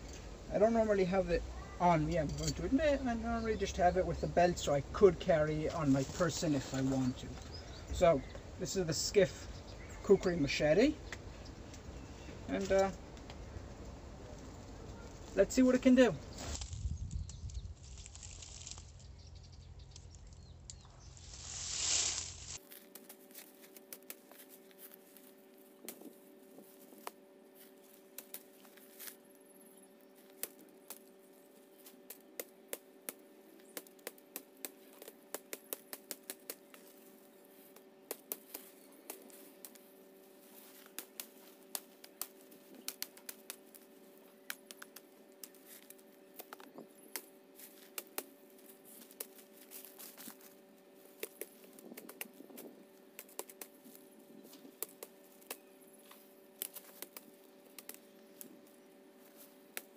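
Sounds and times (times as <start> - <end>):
machete chopping woody stems: 31.8 - 36.9, 37.8 - 39.9.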